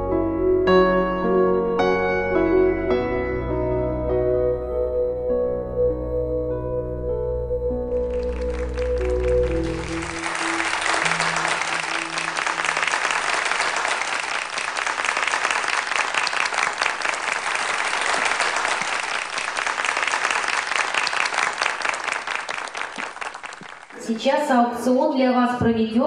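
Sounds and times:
soft ambient music: 0.0 - 13.5
audience applauding: 7.9 - 24.2.

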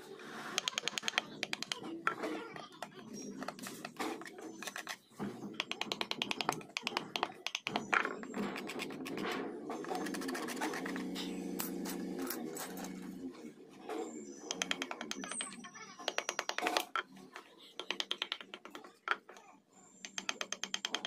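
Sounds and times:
carving tool tapping wood: 0.6 - 2.2, 5.6 - 9.2, 14.5 - 15.4, 17.8 - 18.8, 20.0 - 21.0
chisel scratching wood: 5.6 - 12.9.

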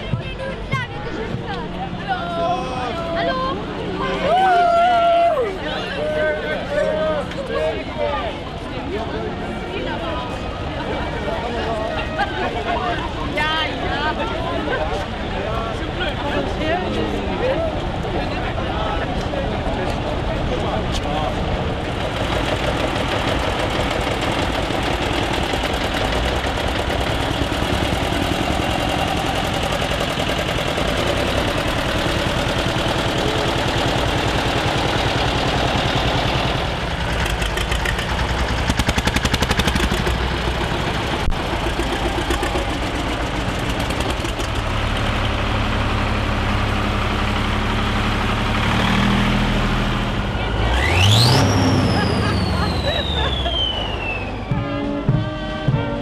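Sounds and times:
deep steady engine hum: 0.0 - 56.0
tractor engines running: 0.0 - 56.0
engine rapid knocking: 21.2 - 54.0.

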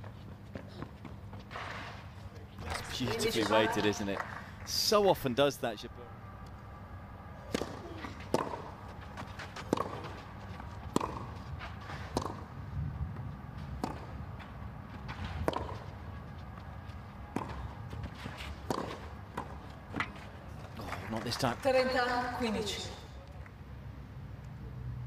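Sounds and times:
tennis ball hit by rackets: 7.4 - 12.5, 13.7 - 14.2, 15.0 - 15.9, 17.3 - 20.2.

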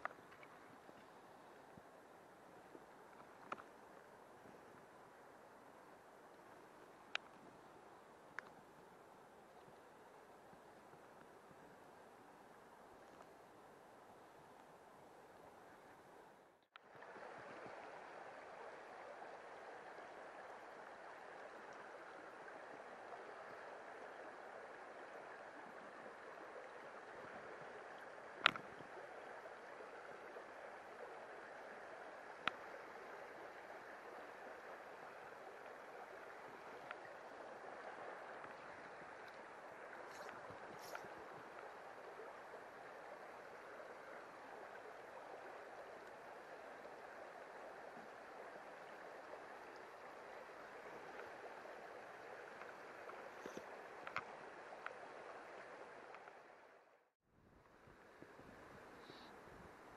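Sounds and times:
river water running over rocks: 0.0 - 57.0.

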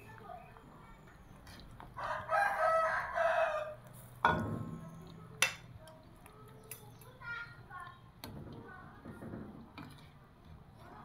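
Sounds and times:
rooster crowing: 2.0 - 3.8
metal ladle striking pot: 4.2 - 4.8.

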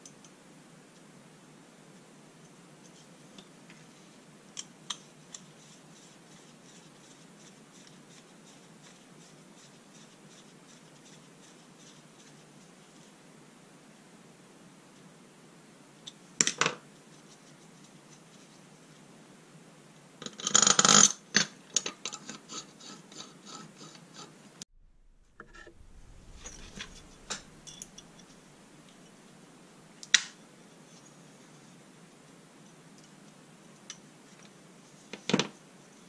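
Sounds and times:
sharp metal clink: 26.0 - 28.4.

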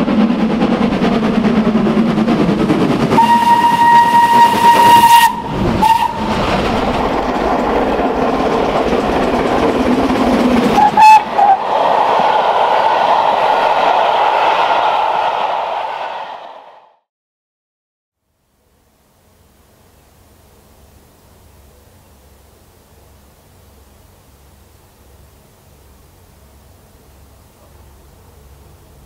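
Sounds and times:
steam locomotive running: 0.0 - 16.9, 18.6 - 29.0
steam whistle: 3.1 - 6.5, 10.8 - 13.4.

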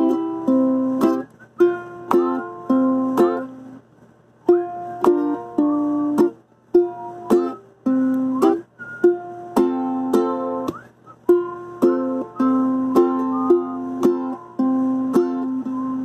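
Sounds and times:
ukulele fingerpicked: 0.0 - 16.0.

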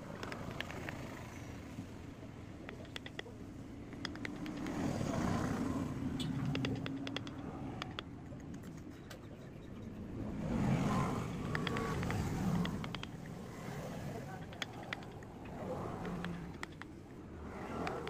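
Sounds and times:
chisel ticking and scraping wood: 2.6 - 4.9, 6.2 - 10.0, 11.4 - 15.4, 16.0 - 17.2.

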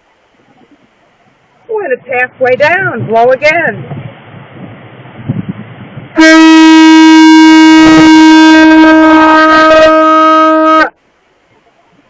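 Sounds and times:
conch shell horn blast: 6.2 - 11.0.

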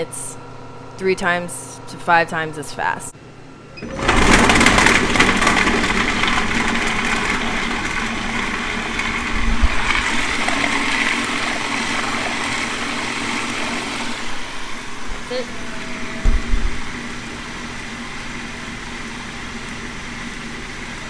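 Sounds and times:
food processor chopping carrots: 4.0 - 14.6
knock: 16.2 - 16.8.

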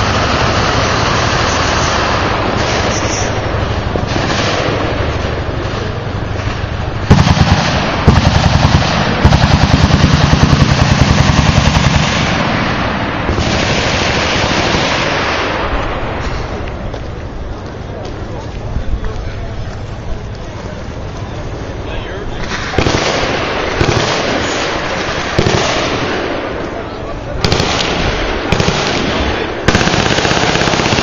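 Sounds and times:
steady background noise: 0.0 - 31.0
machine gun bursts: 27.4 - 31.0.

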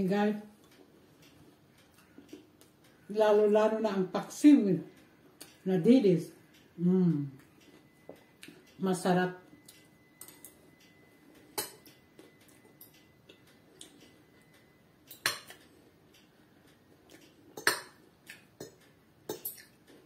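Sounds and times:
cutlery clinking on a plate: 15.1 - 15.6.

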